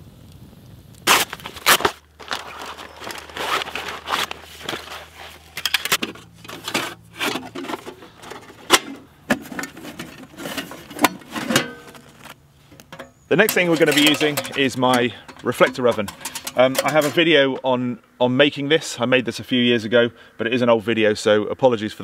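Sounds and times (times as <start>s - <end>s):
metal sheet clacks and rattles: 5.6s - 12.2s, 12.9s - 17.6s.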